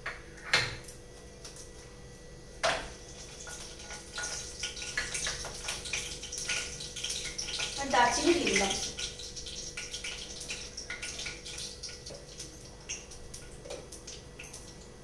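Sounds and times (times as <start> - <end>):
oil sizzling and crackling: 2.6 - 15.0.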